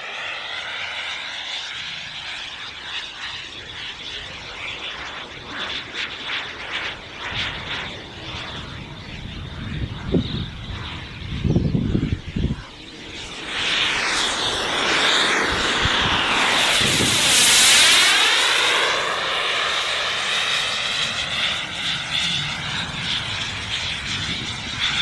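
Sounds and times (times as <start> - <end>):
model jet turbine whining: 0.0 - 25.0.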